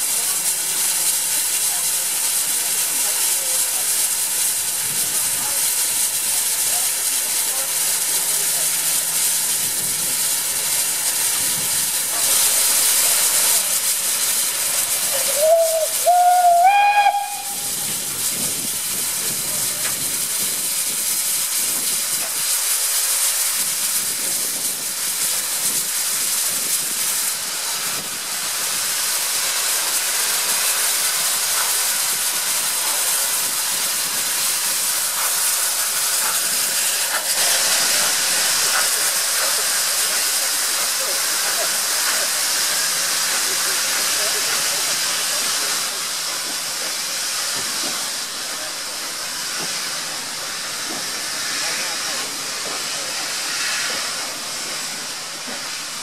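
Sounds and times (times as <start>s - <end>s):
steam locomotive hissing: 0.0s - 56.0s
steam whistle notes: 15.3s - 17.8s.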